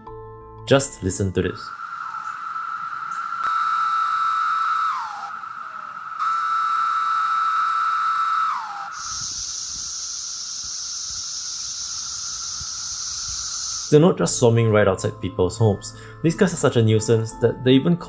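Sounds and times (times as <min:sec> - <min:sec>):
cicada chorus droning: 0:01.0 - 0:14.1
nearby cicada calls: 0:01.0 - 0:14.1.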